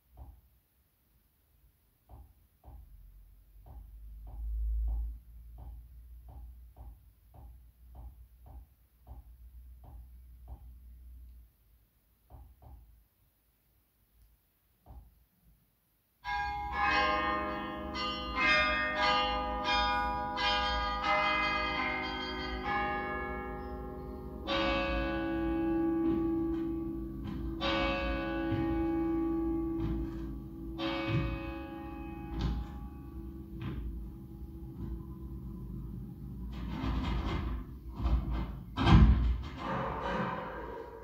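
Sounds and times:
recorded bells ringing: 16.2 - 36.8.

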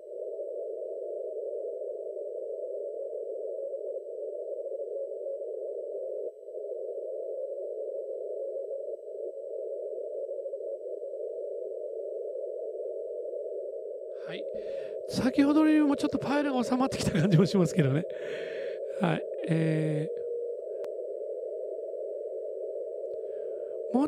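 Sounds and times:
radio band noise hiss: 14.2 - 20.3.

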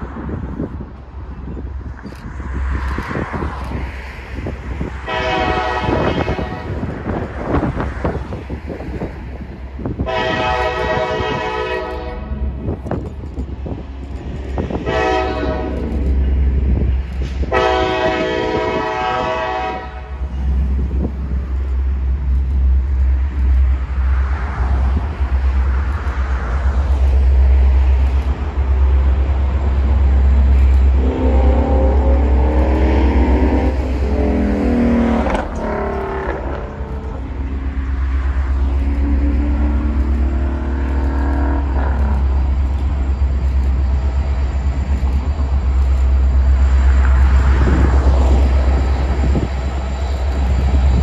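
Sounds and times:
train rumbling: 0.0 - 51.0
locomotive air horn blasts: 5.0 - 7.0, 10.0 - 12.7, 14.8 - 16.1, 17.4 - 20.7, 30.9 - 37.2.

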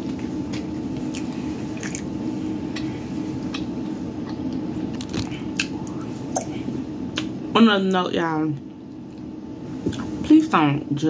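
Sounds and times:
person chewing food: 0.0 - 7.3
steady low hum: 0.0 - 11.0.

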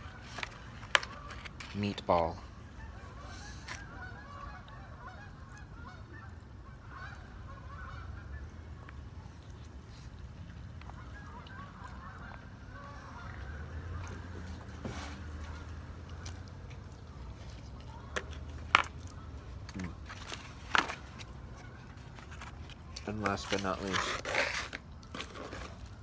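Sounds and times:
geese honking: 0.0 - 9.0, 10.9 - 14.7.

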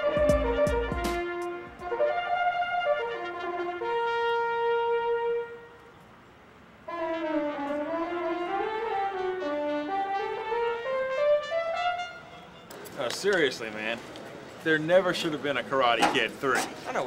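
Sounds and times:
solo trumpet: 0.0 - 6.0, 6.8 - 12.7.

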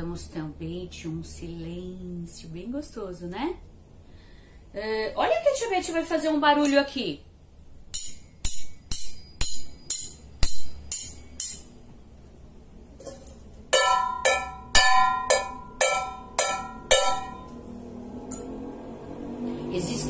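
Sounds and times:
metal pan beaten clanging: 7.9 - 11.8, 13.0 - 17.6
sharp strikes: 13.7 - 17.6.

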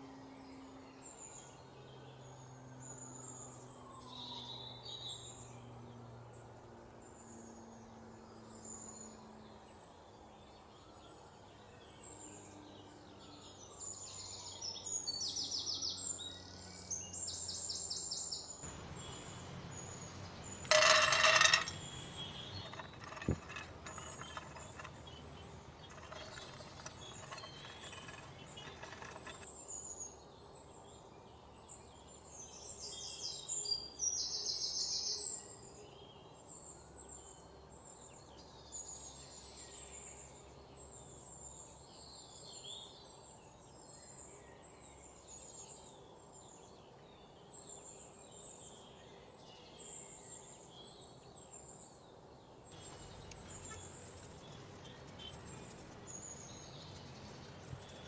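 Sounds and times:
birds chirping: 18.7 - 29.5, 52.8 - 58.0
rattling clatter: 18.7 - 29.5, 52.8 - 58.0
nuts stirring in a frying pan: 20.2 - 29.5.

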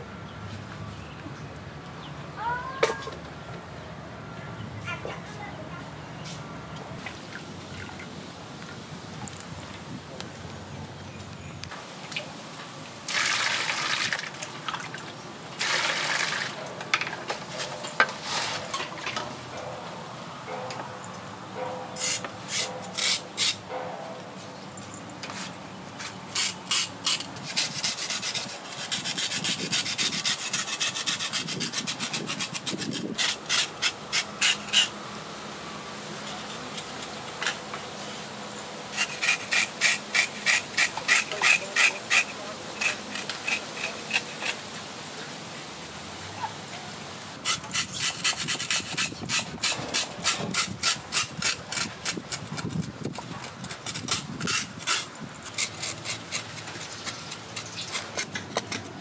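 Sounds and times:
cleaver scraping shark skin: 39.0 - 44.6.

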